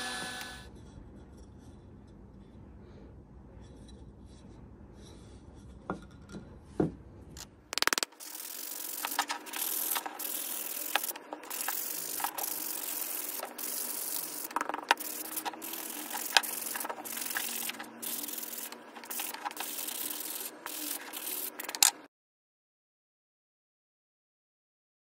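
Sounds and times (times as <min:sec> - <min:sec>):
sharp clicks: 0:07.4 - 0:22.1
sanding block on wood: 0:08.2 - 0:22.0.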